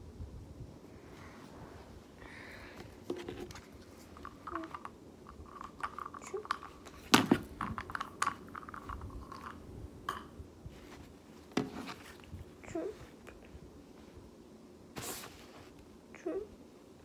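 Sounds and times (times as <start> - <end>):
toys clicking and tapping: 4.2 - 7.0, 7.6 - 9.6.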